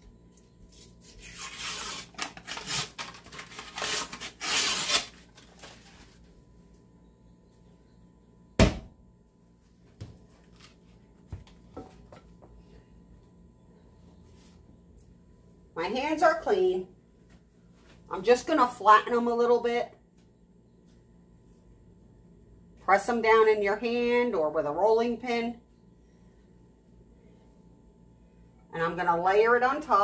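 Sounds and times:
paper wrapper ripping: 0:01.1 - 0:06.2.

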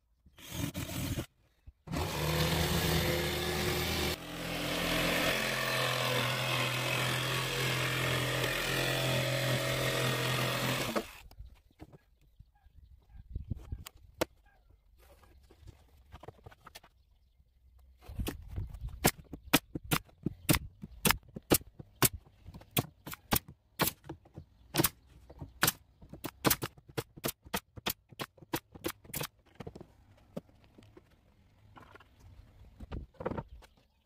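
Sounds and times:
nail gun firing: 0:25.6 - 0:29.4.

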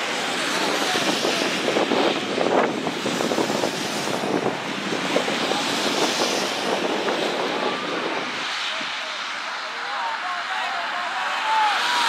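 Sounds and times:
wind noise on microphone: 0:00.0 - 0:09.2
faint distant shouts: 0:08.9 - 0:12.0.

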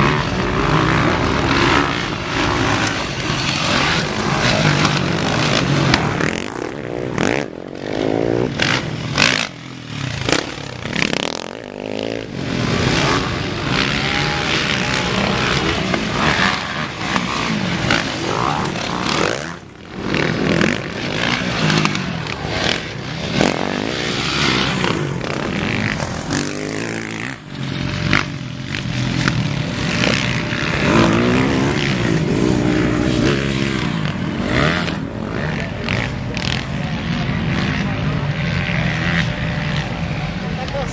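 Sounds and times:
dirt bike engines revving: 0:00.0 - 0:40.9.

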